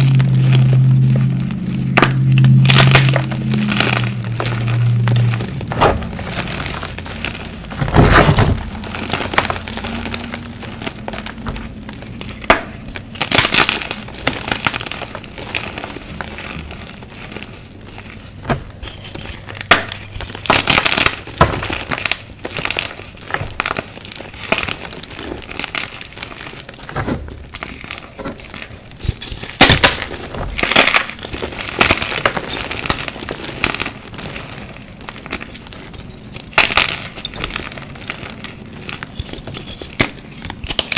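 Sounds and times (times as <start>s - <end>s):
gritty powder crumbling: 0.0s - 40.9s
chalk crunching by hand: 27.6s - 40.9s.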